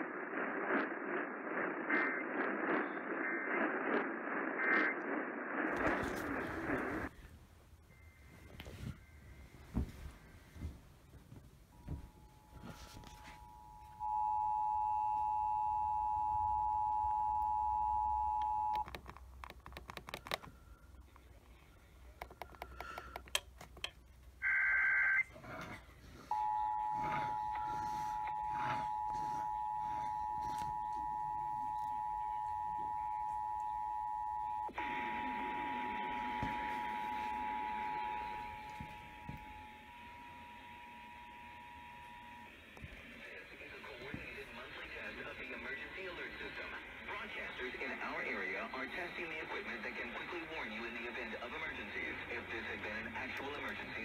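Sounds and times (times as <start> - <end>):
clicks and crackle: 0.0 - 7.1, 18.4 - 24.3
static hiss: 0.0 - 7.5.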